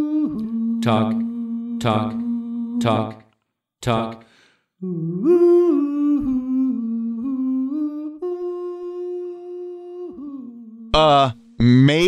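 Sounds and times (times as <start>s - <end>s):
man singing wordless tune: 0.2s - 6.4s, 10.9s - 12.0s.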